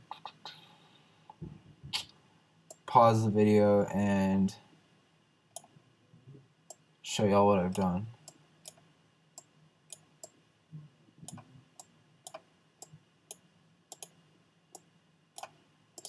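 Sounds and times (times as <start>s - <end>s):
faint computer mouse clicks: 13.9s - 14.1s.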